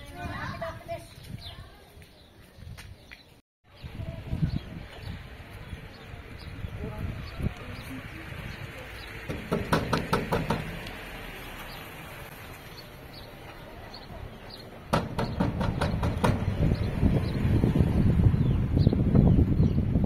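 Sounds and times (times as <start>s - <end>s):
sharp knocks: 9.2s - 10.9s, 14.9s - 16.9s.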